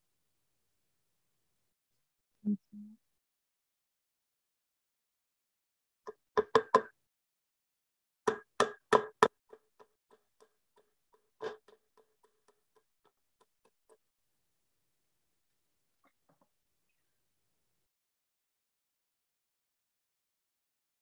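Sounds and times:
hammer striking nails into wood: 6.4 - 6.9, 8.3 - 10.2.

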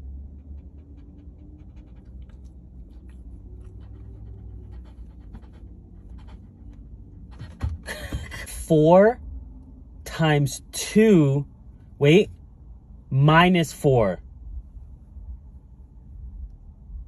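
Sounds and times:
dog panting: 0.1 - 8.5.

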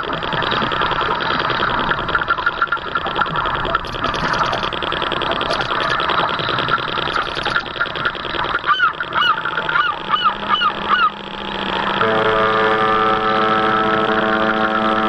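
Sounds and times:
steady pitched tone: 0.0 - 15.0
geese honking: 8.7 - 11.2.

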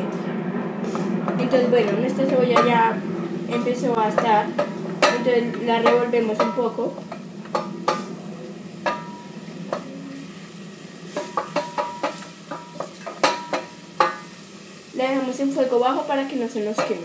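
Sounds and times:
low sizzle of frying: 0.0 - 17.0
spoon knocking metal pot: 1.3 - 2.9, 4.1 - 8.1, 8.8 - 9.9, 11.2 - 14.3, 16.7 - 17.0.

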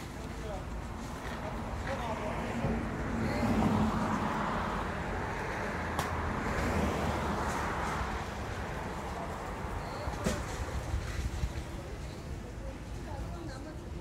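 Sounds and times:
traffic rumble: 0.0 - 14.0.

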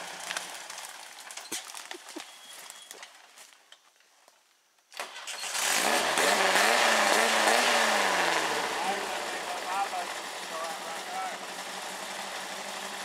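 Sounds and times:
buggy engine running: 0.0 - 2.2, 5.4 - 13.0.

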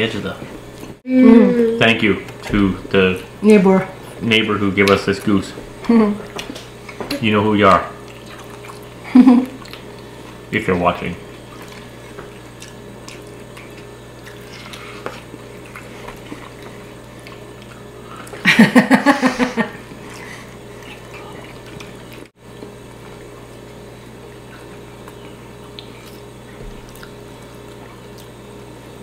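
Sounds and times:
low steady hum: 0.0 - 29.0
faint chewing: 8.0 - 10.4, 11.3 - 18.4, 20.0 - 28.6.

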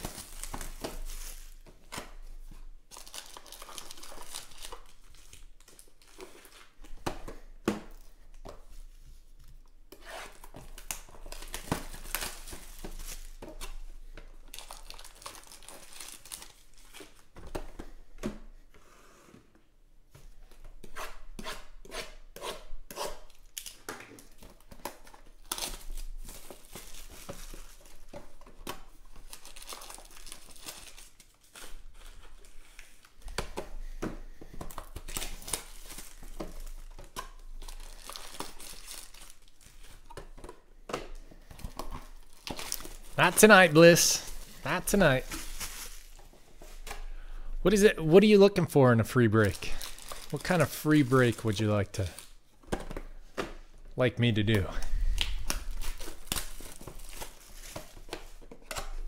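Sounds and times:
card packs clicking and tapping: 0.0 - 2.2, 2.9 - 8.6, 10.4 - 18.5, 23.6 - 32.4, 33.2 - 47.1, 49.4 - 53.7, 54.5 - 59.0
plastic wrapping crinkling and tearing: 0.0 - 6.9, 10.2 - 17.3, 23.3 - 33.2, 34.6 - 40.4, 41.1 - 46.9, 49.2 - 52.5, 54.4 - 59.0.

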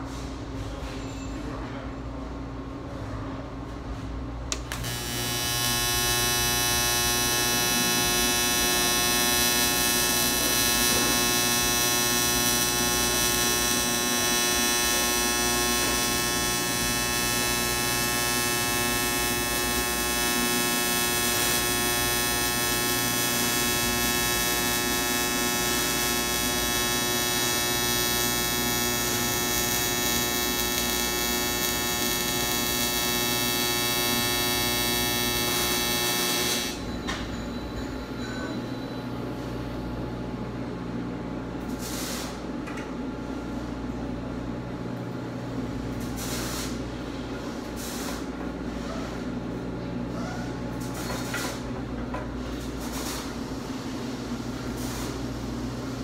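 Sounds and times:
welding arc buzzing hum: 4.2 - 37.2, 39.1 - 48.7, 50.7 - 56.0
welding arc striking click: 4.5 - 36.8.

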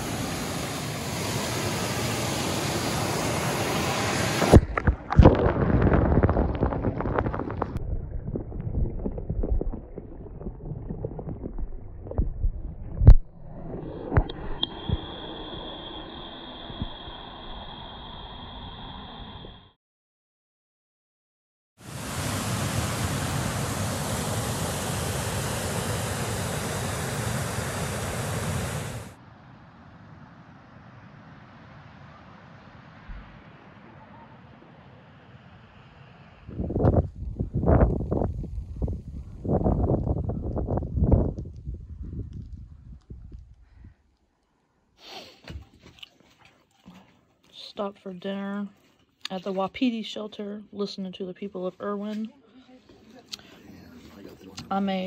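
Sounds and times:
waterfall rushing: 0.0 - 4.6, 21.8 - 29.1
faint stream flowing: 0.0 - 18.2, 21.8 - 29.2
muffled underwater rush: 0.0 - 19.7
underwater bubbling: 3.2 - 19.6
underwater clicks and knocks: 4.6 - 13.3.

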